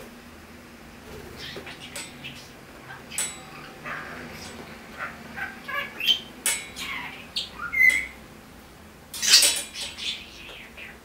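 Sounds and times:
budgerigar chirping: 1.4 - 8.2.

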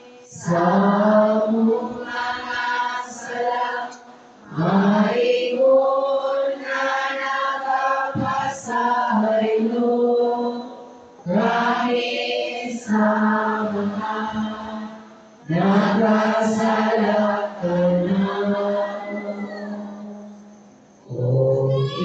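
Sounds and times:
person chanting through loudspeakers: 21.1 - 22.0.

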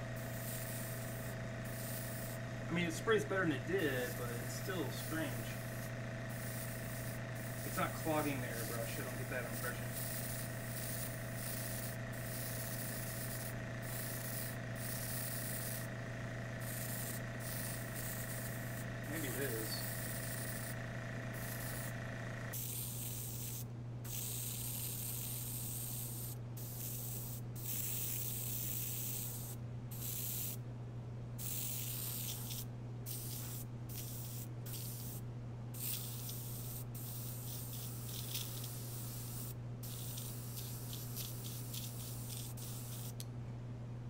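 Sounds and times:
airbrush spraying hiss: 0.0 - 16.0, 16.6 - 30.6, 31.4 - 35.2, 35.8 - 43.2
low hum: 0.0 - 22.5.

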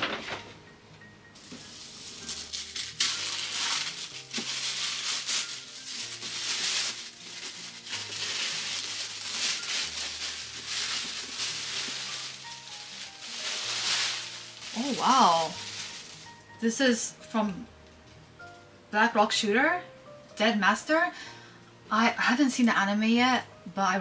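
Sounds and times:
plastic packaging crinkling: 1.4 - 16.6.

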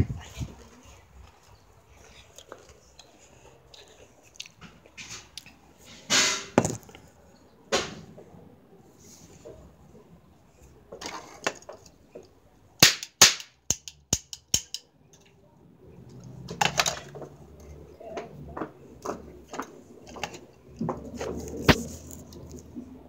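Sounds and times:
toy cap gun firing: 12.8 - 14.8.

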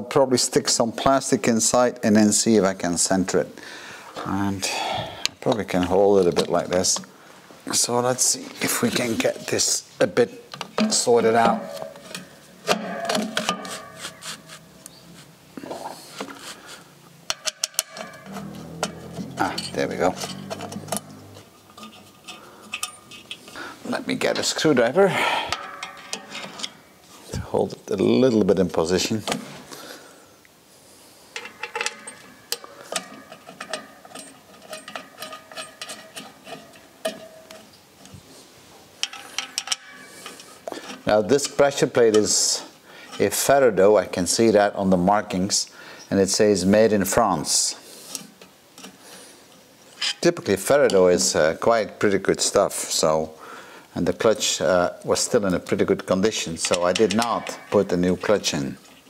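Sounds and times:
clutch plate scraping and rubbing: 10.6 - 23.6
metal clicks and taps: 17.3 - 19.0, 25.5 - 26.8, 31.4 - 38.2, 39.0 - 41.0.

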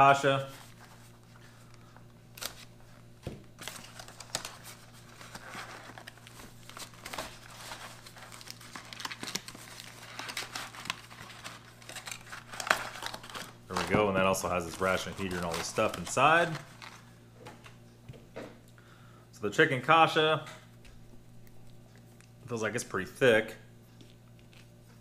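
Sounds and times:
low steady hum: 0.0 - 25.0
cardboard and plastic tearing: 2.4 - 2.7, 3.5 - 17.1.

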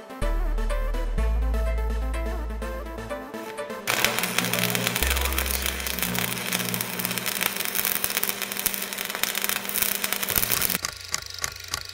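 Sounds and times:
fire crackling roar: 3.9 - 10.8
steady low hum: 3.9 - 10.8.

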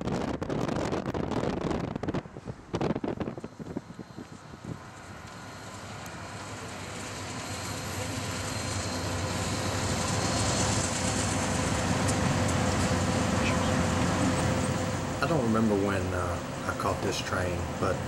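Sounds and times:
freight train rumbling past: 0.0 - 18.0.

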